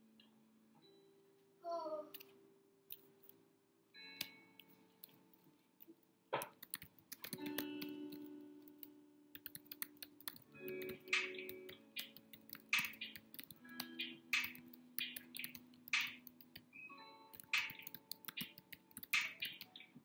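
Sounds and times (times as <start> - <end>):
keyboard typing clicks: 6.4 - 16.7, 17.3 - 19.9
lofi hip hop music: 10.4 - 16.5.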